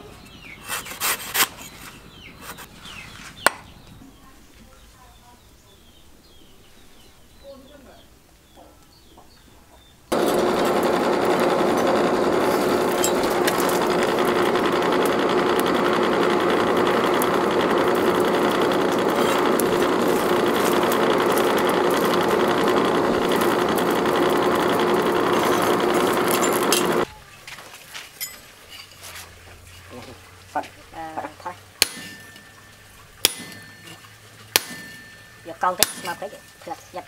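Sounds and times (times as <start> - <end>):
forge blower whirring: 10.1 - 27.1.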